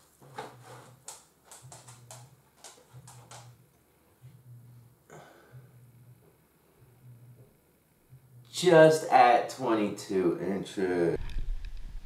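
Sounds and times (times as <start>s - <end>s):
low hum: 3.0s - 8.6s, 11.2s - 12.0s.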